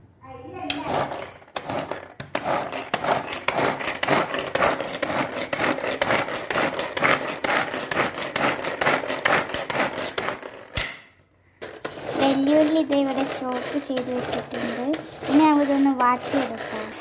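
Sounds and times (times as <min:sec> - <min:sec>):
vegetable chopper whirring and clattering: 0:00.7 - 0:11.0, 0:11.7 - 0:17.0
sharp click: 0:10.8 - 0:11.1.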